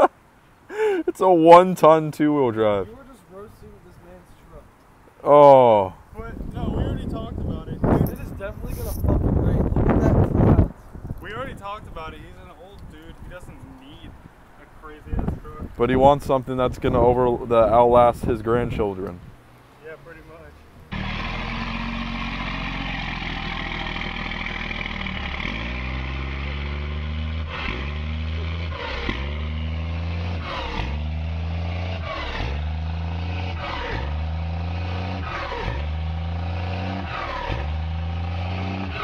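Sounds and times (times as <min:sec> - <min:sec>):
diesel pickup engine revving: 0:17.4 - 0:39.0.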